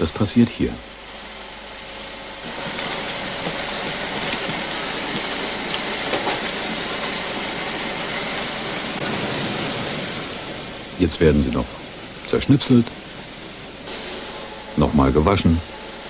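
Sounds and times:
water rushing: 2.5s - 15.6s.

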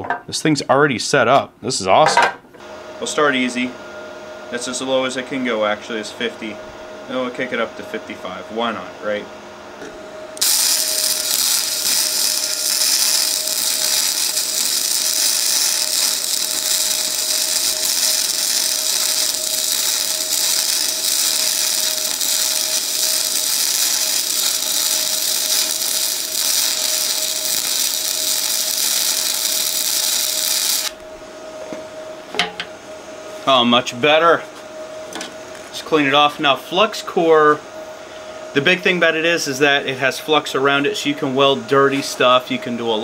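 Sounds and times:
welding arc crackling sizzle: 10.4s - 31.0s.

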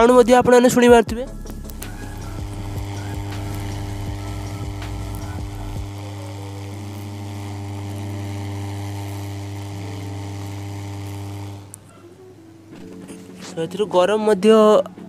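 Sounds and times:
electrical hum with hiss: 1.1s - 13.4s.

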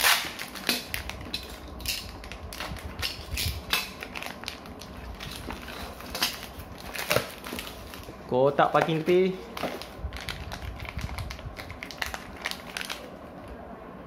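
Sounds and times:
cardboard packaging rustling and clicking: 3.9s - 8.1s, 8.7s - 13.1s.

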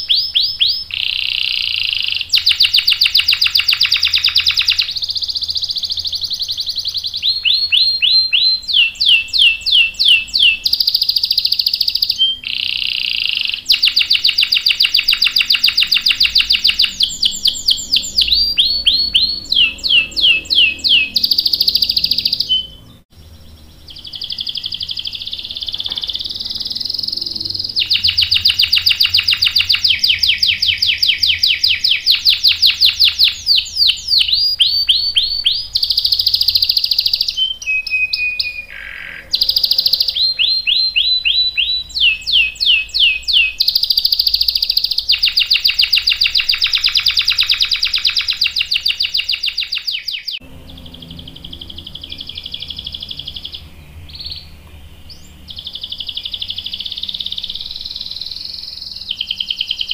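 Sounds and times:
canary singing trills: 0.0s - 59.9s.

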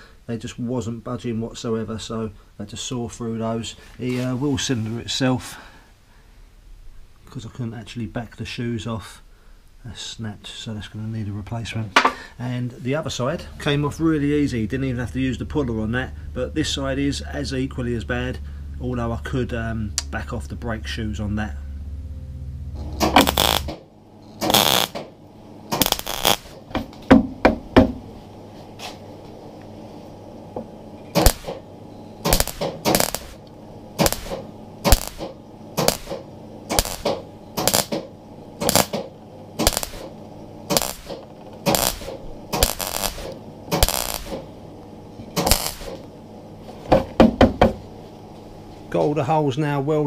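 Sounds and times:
welder bursts: 22.8s - 26.8s, 31.1s - 44.5s, 45.4s - 46.1s.

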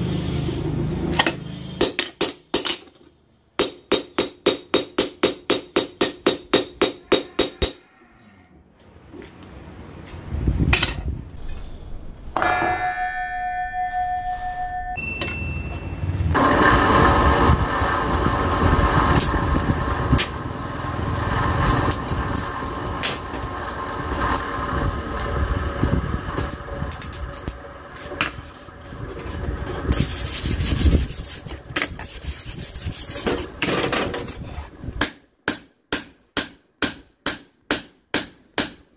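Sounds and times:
hammer striking metal on anvil: 3.6s - 7.8s, 12.4s - 15.9s, 35.0s - 38.8s.

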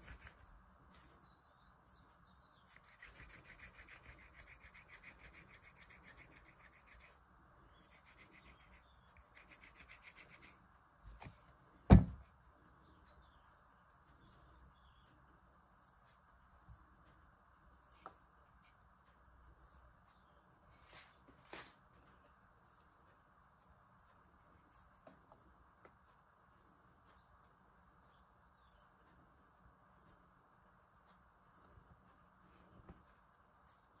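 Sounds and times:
hands rubbing dough in steel bowl: 0.0s - 1.3s, 2.6s - 10.6s
loud knock: 11.9s - 12.2s.

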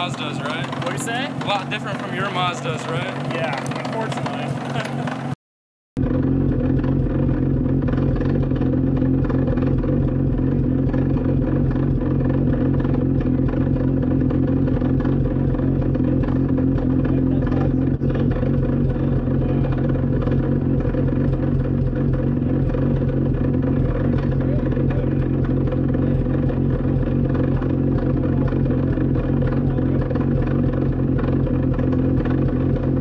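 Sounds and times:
racecar rotary engine running: 0.0s - 5.4s, 6.0s - 33.0s.

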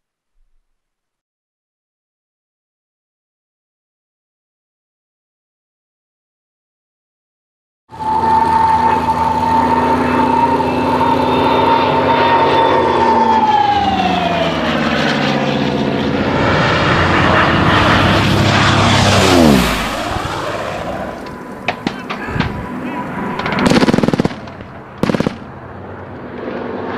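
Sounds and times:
propeller aircraft flying past: 7.9s - 26.9s
sharp cracks: 21.2s - 22.6s, 23.3s - 26.4s.

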